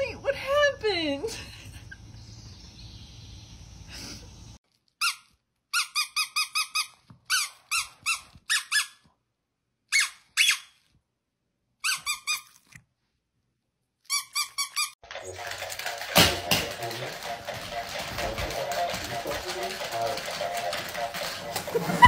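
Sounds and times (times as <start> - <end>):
squeaky dog toy squeaks: 5.0 - 9.1, 9.9 - 10.9, 11.8 - 12.8, 14.0 - 15.0.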